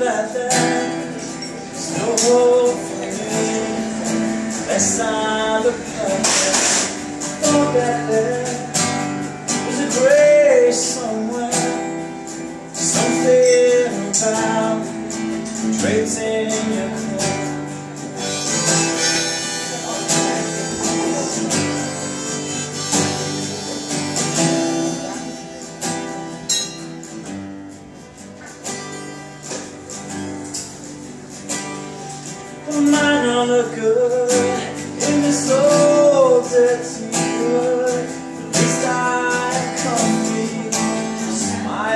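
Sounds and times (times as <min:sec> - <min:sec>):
man singing: 0:00.0 - 0:25.8, 0:32.3 - 0:41.9
acoustic guitar strumming: 0:00.0 - 0:41.9
harmonica: 0:18.0 - 0:26.0.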